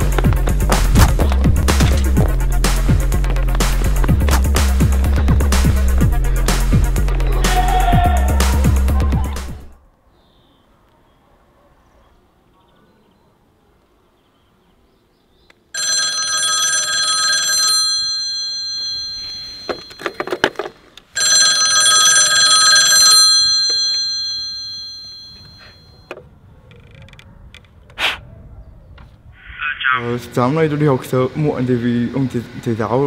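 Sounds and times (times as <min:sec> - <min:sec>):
telephone bell ringing: 0:15.8 - 0:20.4, 0:21.2 - 0:26.1.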